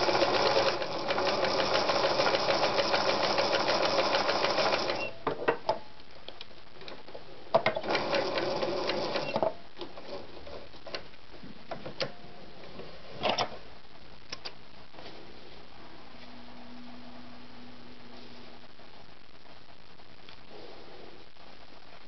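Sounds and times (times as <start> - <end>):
sewing machine stitching: 0.0 - 5.1, 7.7 - 9.4.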